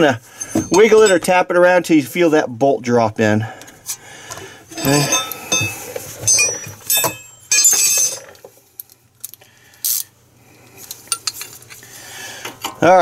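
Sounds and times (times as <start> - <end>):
metal hand tools clinking: 4.7 - 8.4, 11.1 - 11.5.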